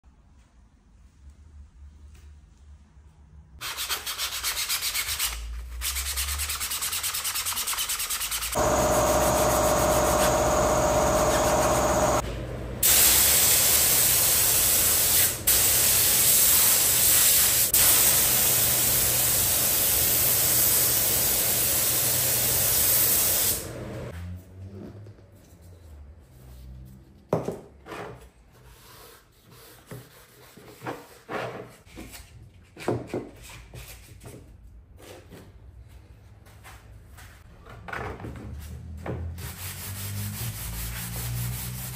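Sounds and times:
air spray gun hissing: 8.6s - 12.2s, 12.8s - 23.7s
steady machine hum: 8.6s - 12.8s.

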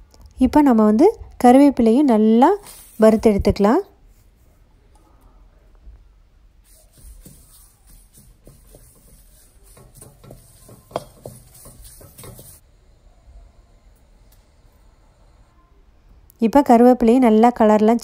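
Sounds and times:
wooden spatula scraping a pan: 6.7s - 12.7s.

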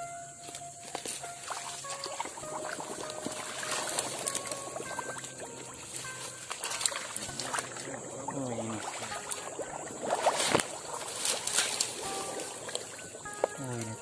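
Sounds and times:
branches brushing and snapping: 0.0s - 14.0s
muddy water splashing: 0.0s - 14.0s.

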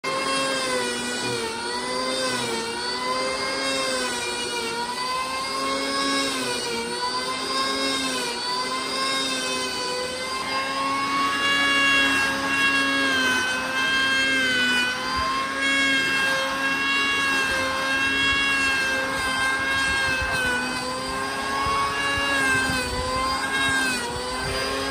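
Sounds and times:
electric hand planer whining: 0.0s - 24.9s.

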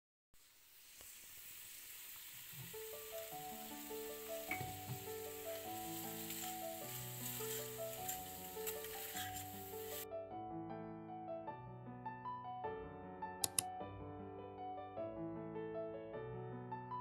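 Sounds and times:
pot simmering and sizzling: 0.4s - 10.0s
slow background music: 2.7s - 14.0s.

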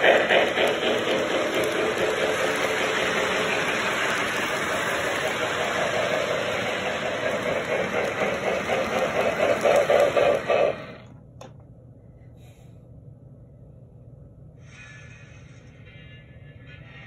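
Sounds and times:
toy train running on track: 0.0s - 11.1s.

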